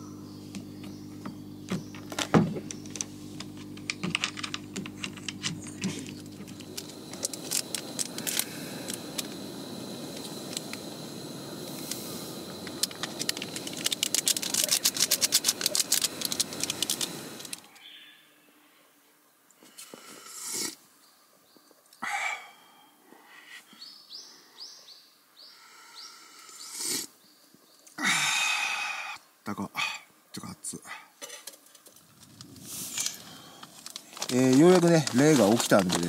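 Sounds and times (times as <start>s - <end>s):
gas stove burning: 0.0s - 17.7s, 31.9s - 36.0s
electrical hum: 0.0s - 20.5s, 31.9s - 36.0s
sharp clicks: 11.7s - 17.8s.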